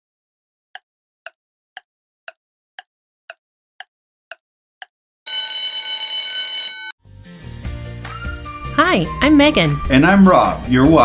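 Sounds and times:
alarm ringing: 5.3 - 7.0
music: 7.0 - 11.0.

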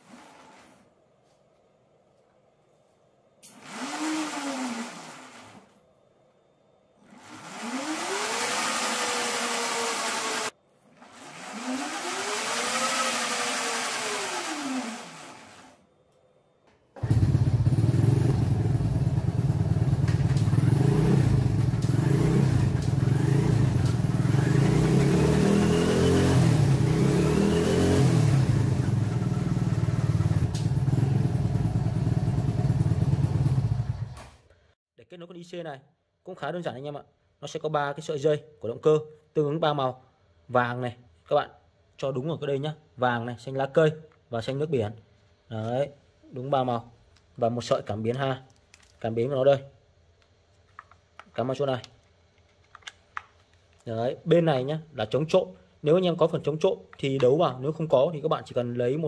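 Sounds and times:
electric motor whining: 3.6 - 5.6, 7.2 - 10.5, 11.1 - 15.7, 20.6 - 28.4
motorcycle engine running: 17.0 - 34.2.

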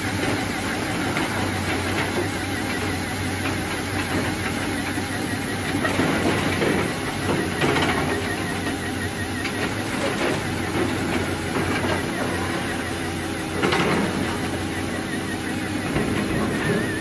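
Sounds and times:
small gear motor whirring: 4.5 - 17.0.

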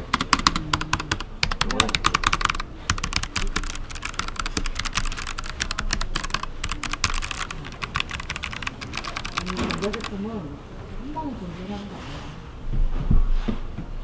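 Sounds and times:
mechanical keyboard typing clicks: 0.0 - 10.2.

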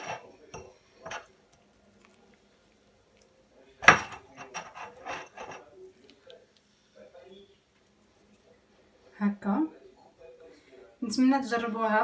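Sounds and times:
dishes and cutlery clattering: 0.0 - 1.3, 3.8 - 5.8.

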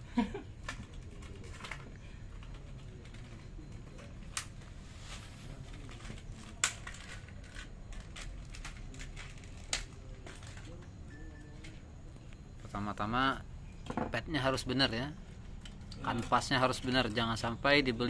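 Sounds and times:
plastic packaging clicks and crinkle: 0.5 - 4.8, 5.5 - 10.9.

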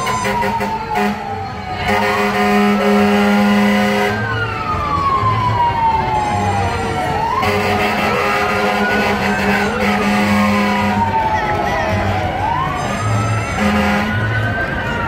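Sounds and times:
horn blast: 0.0 - 4.2, 7.3 - 11.2, 13.5 - 14.3.

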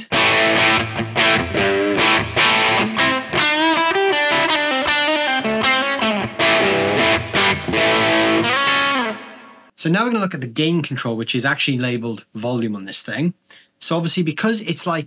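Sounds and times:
overdriven electric guitar: 0.0 - 9.7.

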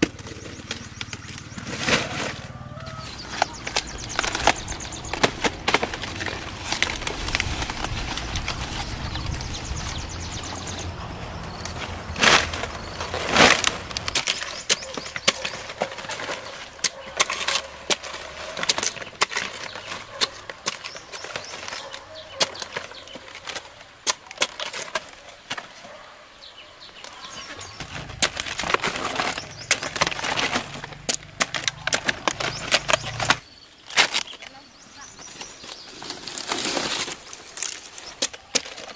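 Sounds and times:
leafy rustling: 0.0 - 38.9
cabbage leaves snapping: 2.9 - 9.5.

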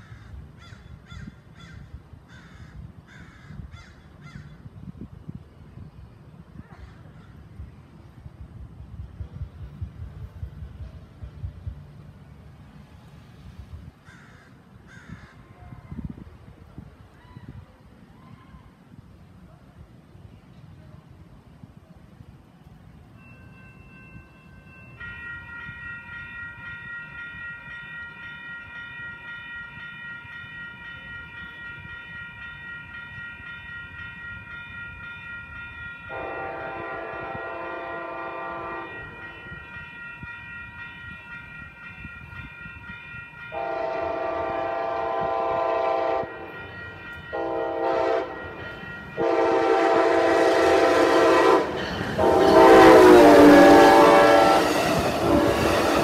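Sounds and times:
train running noise: 0.0 - 56.0
level-crossing bell ringing: 23.2 - 36.7, 38.9 - 44.2, 46.2 - 49.8
locomotive horn blasts: 36.0 - 39.7, 43.4 - 56.0.

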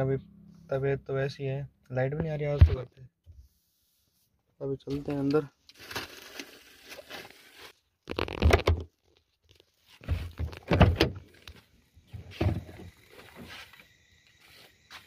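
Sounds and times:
heavy thumps and clunks: 2.2 - 3.4, 10.0 - 11.3, 12.1 - 13.5.

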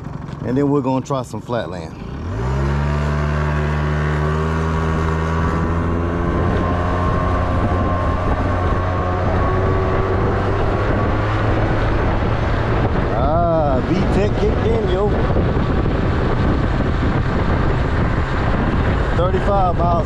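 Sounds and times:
scooter engine running hard: 0.0 - 1.1, 1.9 - 20.0
wind and road noise: 0.0 - 20.0.

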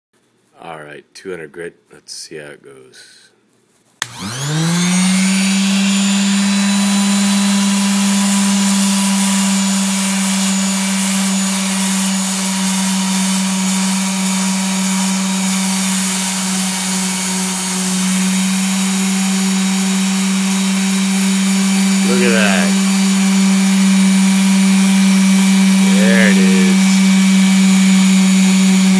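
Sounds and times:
sander motor hum: 4.0 - 28.9.

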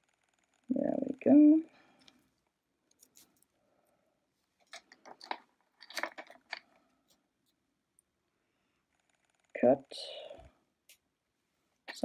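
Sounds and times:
jewellery tools and beads clicking: 4.6 - 6.7.

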